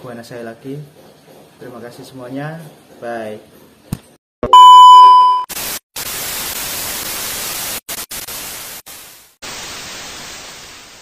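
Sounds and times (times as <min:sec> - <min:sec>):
static hiss: 0:05.6 - 0:11.0.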